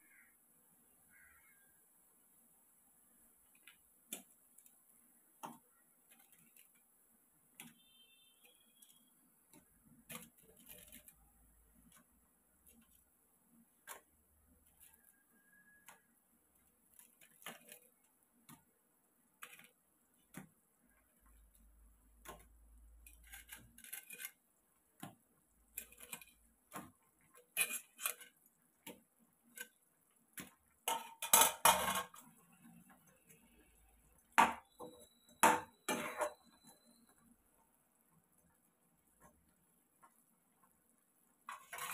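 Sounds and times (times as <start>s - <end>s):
frying fat sizzling: 1.0s - 41.9s.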